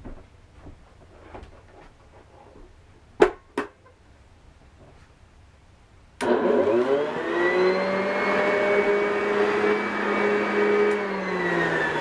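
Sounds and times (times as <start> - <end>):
vacuum cleaner motor whine: 6.2 - 12.0.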